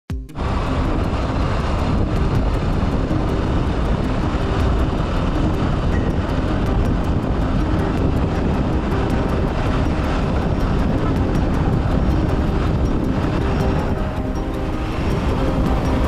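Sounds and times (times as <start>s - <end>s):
faint fast ticking: 0.1s - 16.0s
wind and road noise: 0.1s - 16.0s.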